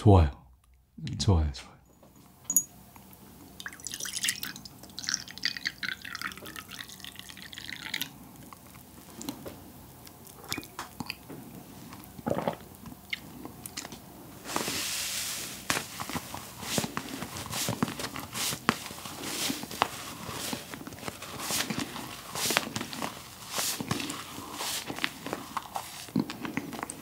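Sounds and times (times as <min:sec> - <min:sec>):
coffee pouring into a mug: 0:03.6 - 0:08.9.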